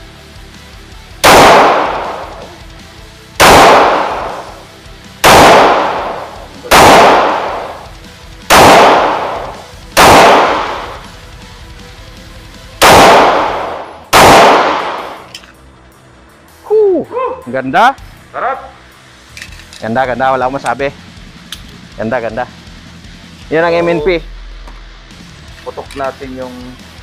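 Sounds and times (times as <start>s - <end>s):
pistol gunshots with echo: 1.2s - 2.6s, 3.4s - 4.6s, 5.2s - 7.9s, 8.5s - 11.1s, 12.8s - 15.3s.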